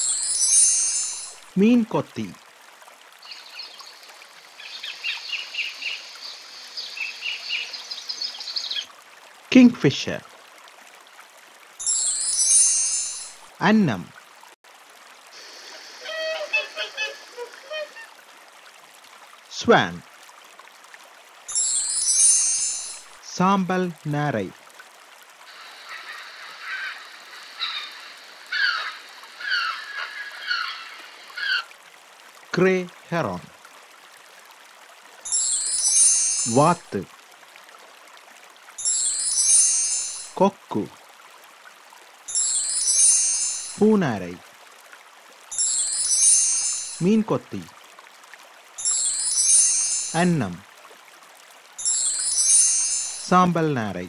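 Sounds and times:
background hiss: 0:00.0 - 0:10.3, 0:11.5 - 0:54.0
kingfisher shrill piping calls: 0:25.8 - 0:31.6.

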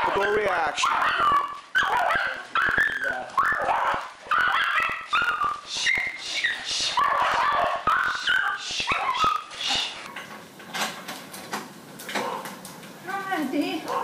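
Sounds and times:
dogs whining and yelping: 0:00.0 - 0:10.1.

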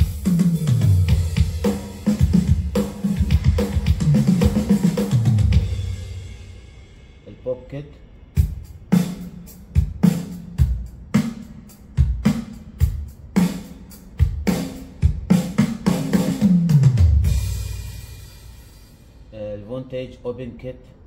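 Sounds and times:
kick and snare drum pattern: 0:00.0 - 0:06.8, 0:08.4 - 0:18.4
cymbal crash: 0:04.0 - 0:07.3.

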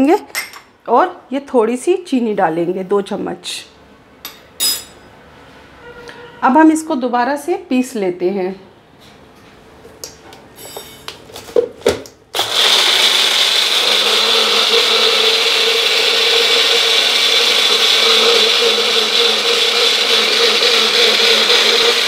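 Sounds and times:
mixer grinder motor whine: 0:12.4 - 0:22.0.

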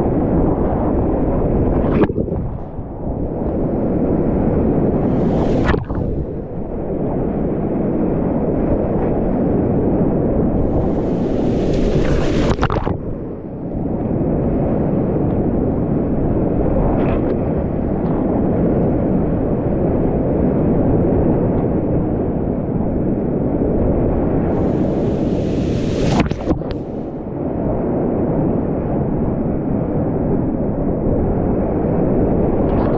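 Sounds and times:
hissing water splash: 0:05.0 - 0:06.6, 0:10.6 - 0:12.9, 0:24.5 - 0:27.1.

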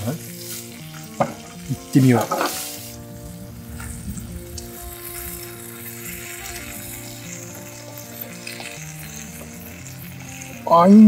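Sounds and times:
food sizzling in skillet: 0:00.0 - 0:11.0
soft background music: 0:00.0 - 0:11.0
tongs and knife in pan: 0:00.4 - 0:02.8.

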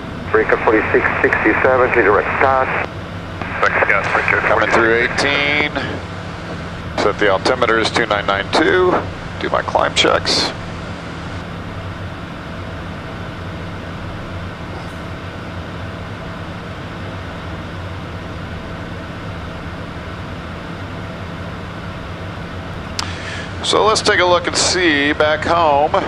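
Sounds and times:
low hum: 0:00.0 - 0:26.0
rush of air in cockpit: 0:22.9 - 0:23.7.

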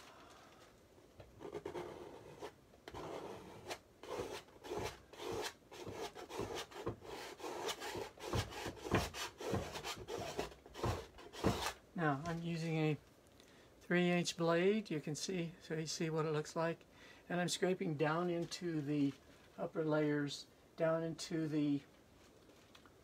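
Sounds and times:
blade scraping dry paint on canvas: 0:01.4 - 0:11.8.

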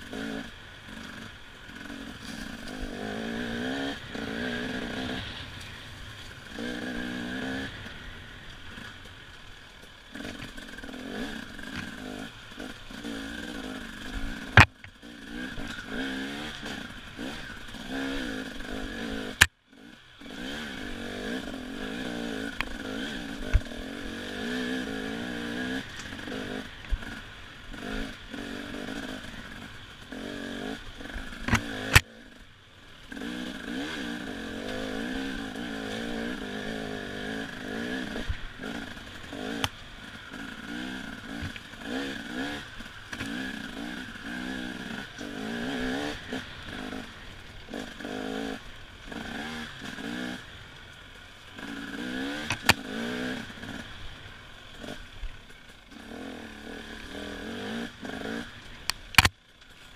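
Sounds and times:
dirt bike engine revving: 0:00.0 - 0:59.3
sharp crack: 0:52.4 - 0:52.9.

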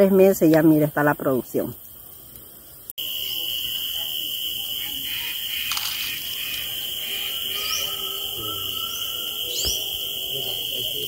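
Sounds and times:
insects droning: 0:00.0 - 0:11.0
rising bird chirps: 0:04.8 - 0:10.7.

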